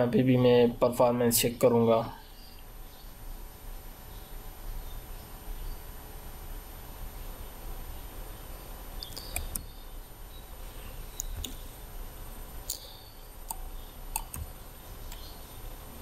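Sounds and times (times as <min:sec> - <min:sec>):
computer mouse clicking: 0:09.0 - 0:09.7, 0:11.2 - 0:11.6, 0:13.5 - 0:15.3.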